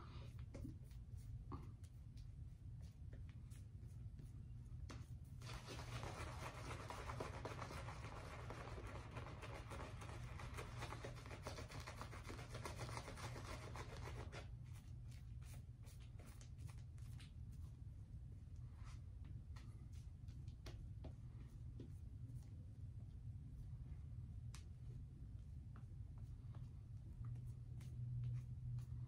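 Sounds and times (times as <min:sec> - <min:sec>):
shaving brush rubbing lather: 0:05.4 - 0:14.4.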